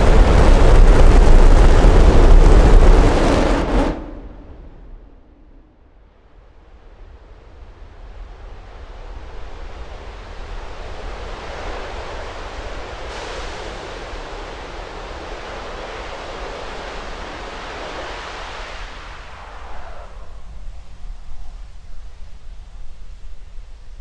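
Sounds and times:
distant rocket engine roar: 0.0 - 6.0, 6.6 - 22.9.

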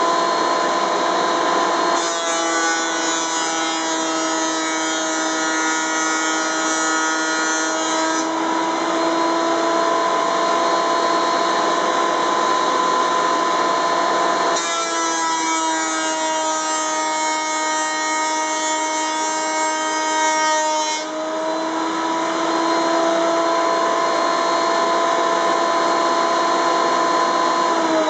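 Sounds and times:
planer motor whine: 0.0 - 2.2, 8.2 - 14.7, 21.0 - 28.0.

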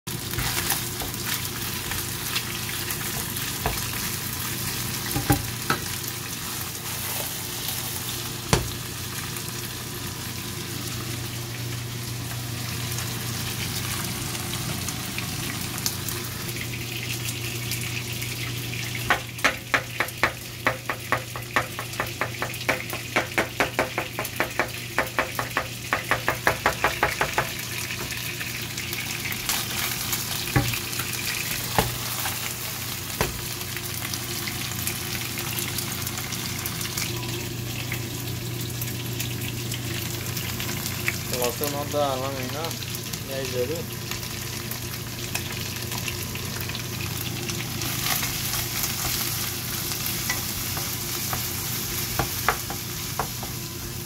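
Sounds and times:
chicken sizzling in oil: 0.1 - 54.0
wooden spatula tapping pan: 19.1 - 27.6.

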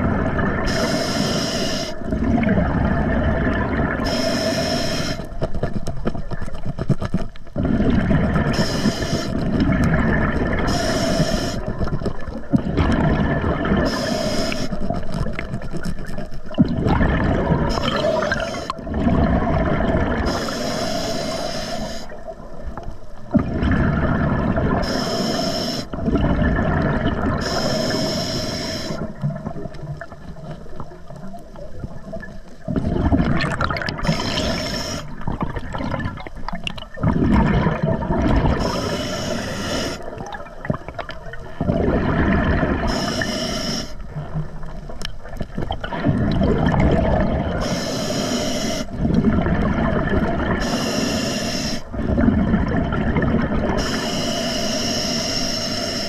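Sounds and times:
gurgling rush of bubbles: 0.0 - 1.0, 1.7 - 20.7, 22.2 - 25.0, 25.9 - 28.0, 28.8 - 47.8, 48.7 - 51.0, 51.7 - 54.0
regulator air hiss: 0.7 - 2.0, 4.0 - 5.3, 8.5 - 9.4, 10.7 - 11.7, 13.9 - 14.9, 17.7 - 18.8, 20.3 - 22.2, 24.8 - 26.0, 27.4 - 29.0, 34.0 - 35.1, 38.6 - 40.1, 42.9 - 44.0, 47.6 - 48.9, 50.6 - 51.9, 53.8 - 56.0.

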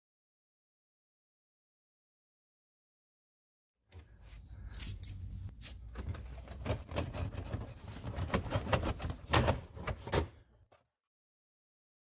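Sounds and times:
rubbing and handling knocks: 4.0 - 10.4.

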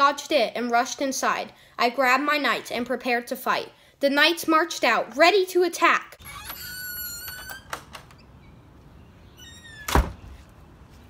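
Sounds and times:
door shutting thud: 6.2 - 8.3, 9.4 - 10.5
door hinge squealing: 6.2 - 8.6, 9.3 - 10.2.

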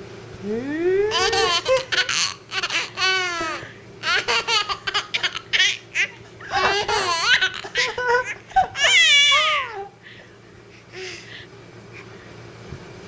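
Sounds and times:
baby laughing: 1.1 - 9.9.

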